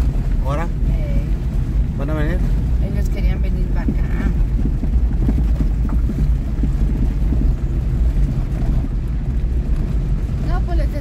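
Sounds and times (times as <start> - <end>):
car engine and tyres rumbling: 0.0 - 11.0
knocks and rattles: 3.7 - 10.4.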